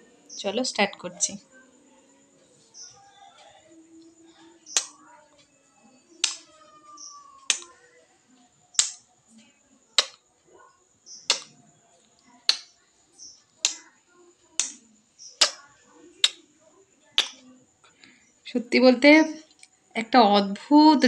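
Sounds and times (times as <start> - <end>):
lips kissing a mirror: 15.4 - 15.6.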